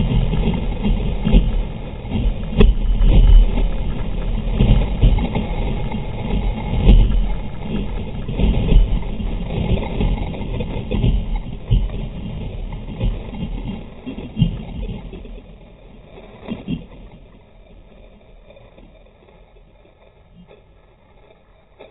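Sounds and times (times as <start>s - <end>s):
loud low rumble: 0.0s - 16.9s
wind buffeting microphone: 0.0s - 18.6s
water rushing and splashing: 0.0s - 18.8s.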